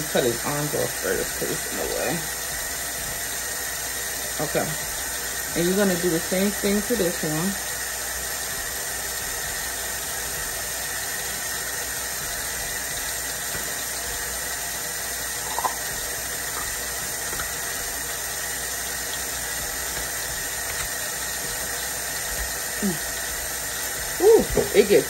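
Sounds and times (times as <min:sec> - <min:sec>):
tap running into metal sink: 0:15.4 - 0:18.0.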